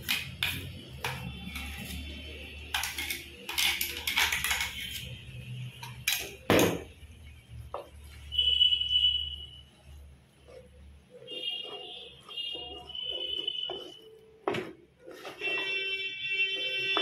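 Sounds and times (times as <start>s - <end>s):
spatula scraping earthenware pot: 0.0s - 5.2s, 9.8s - 17.0s.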